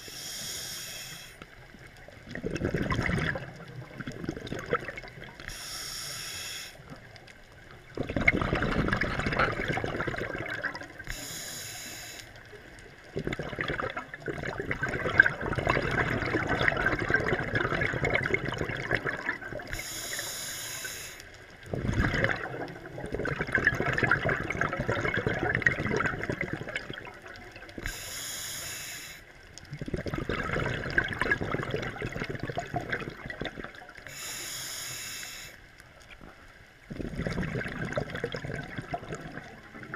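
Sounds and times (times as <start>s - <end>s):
regulator hiss on inhale: 0.0s - 1.8s, 5.4s - 7.1s, 11.0s - 12.6s, 19.7s - 21.6s, 27.7s - 29.5s, 34.0s - 36.0s
exhaled bubbles rushing: 2.0s - 5.5s, 7.9s - 11.1s, 13.0s - 19.8s, 21.6s - 27.9s, 29.7s - 34.0s, 36.9s - 39.9s.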